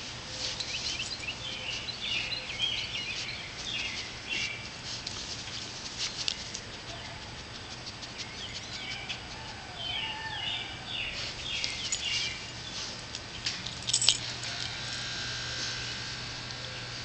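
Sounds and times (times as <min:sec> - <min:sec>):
dog rustling in grass: 0:00.0 - 0:09.2, 0:10.7 - 0:14.7
bird chirping: 0:00.3 - 0:04.7, 0:09.8 - 0:13.5.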